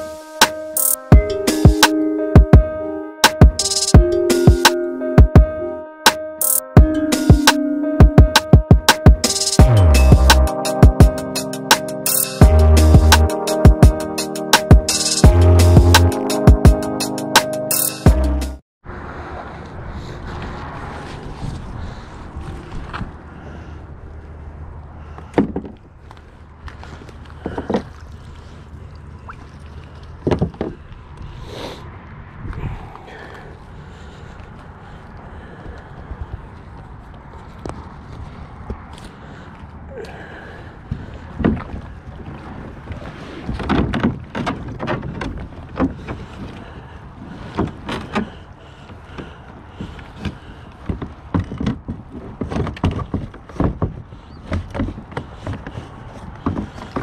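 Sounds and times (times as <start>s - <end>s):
knocks and bumps on a kayak: 25.2s - 25.8s, 30.2s - 30.9s, 41.0s - 57.0s.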